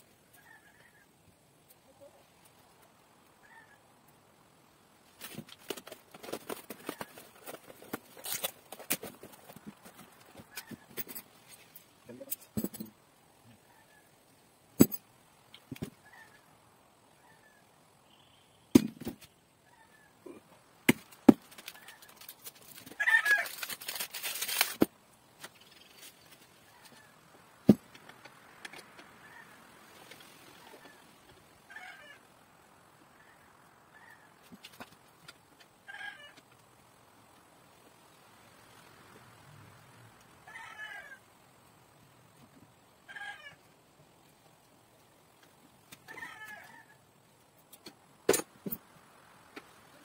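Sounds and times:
faint animal calls: 0:03.4 - 0:04.0, 0:19.6 - 0:20.8
rustling: 0:05.0 - 0:13.0, 0:20.9 - 0:31.6.

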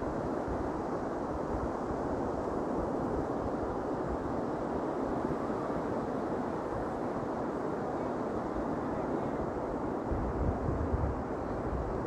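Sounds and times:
wind buffeting microphone: 0:08.4 - 0:12.0.

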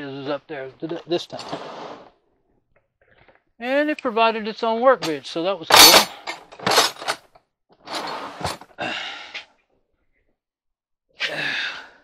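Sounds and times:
person breathing out heavily: 0:08.8 - 0:09.5, 0:11.2 - 0:12.0.

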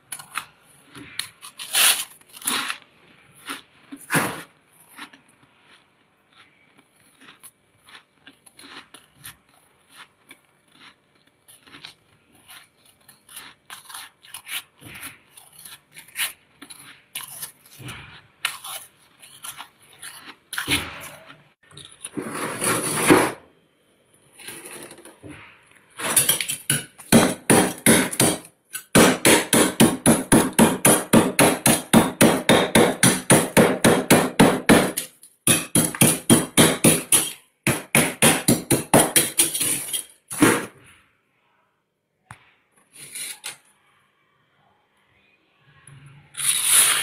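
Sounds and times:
metal spoon scraping frost: 0:00.1 - 0:05.5, 0:11.5 - 0:23.4, 0:24.3 - 0:27.1, 0:34.9 - 0:37.5, 0:38.4 - 0:40.4, 0:42.9 - 0:43.9, 0:46.2 - 0:47.0.

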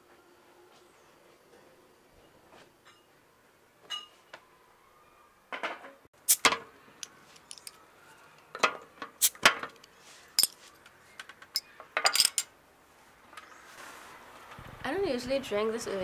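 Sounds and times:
bottle opener clinking on glass: 0:11.6 - 0:12.5.

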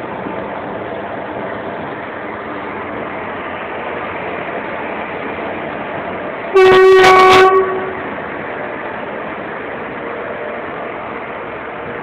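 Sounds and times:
train rumbling past: 0:00.0 - 0:12.0
locomotive horn blast: 0:06.5 - 0:08.2.

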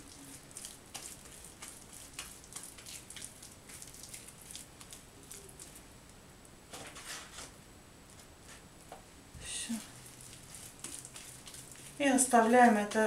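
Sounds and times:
dough squelching between hands: 0:00.0 - 0:05.9, 0:09.5 - 0:13.0.

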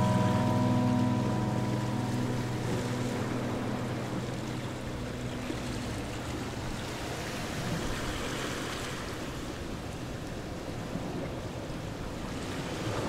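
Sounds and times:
background music: 0:00.0 - 0:07.4
steady rushing noise: 0:00.0 - 0:09.6.

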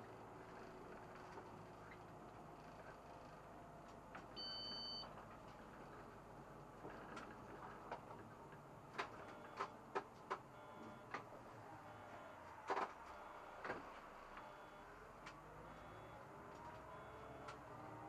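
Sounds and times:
faint bus hum: 0:00.0 - 0:18.0
clicks and light knocks: 0:06.8 - 0:11.3.

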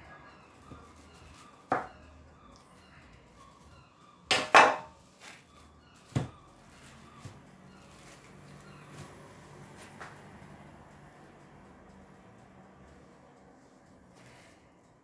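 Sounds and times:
knife knocking on tabletop: 0:04.3 - 0:04.9.

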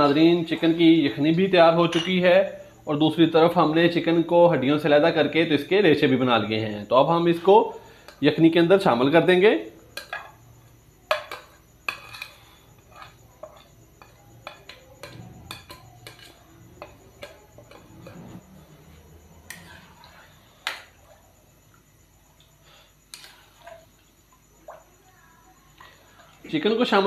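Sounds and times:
spoon clinking on plate and pan: 0:01.8 - 0:02.4, 0:11.1 - 0:18.3
stirring in a pan: 0:09.9 - 0:25.0
spoon scraping a plate: 0:11.1 - 0:18.5.

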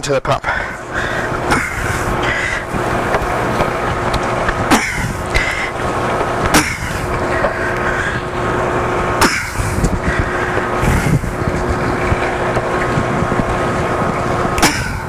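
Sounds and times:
machinery hum: 0:00.0 - 0:15.0
tubing scraping on pump outlet: 0:00.6 - 0:15.0.

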